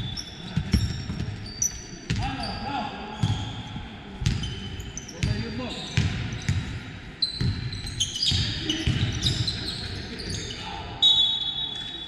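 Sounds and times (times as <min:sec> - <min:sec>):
sneakers squeaking on floor: 0:00.0 - 0:12.0
basketball bouncing: 0:04.2 - 0:04.5, 0:06.0 - 0:06.8, 0:07.4 - 0:09.5.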